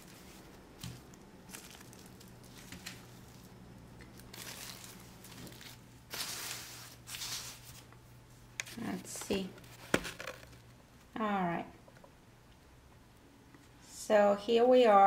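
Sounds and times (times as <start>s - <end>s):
plastic wrapping crinkling: 0.0s - 7.9s
faint steady hum: 0.0s - 15.0s.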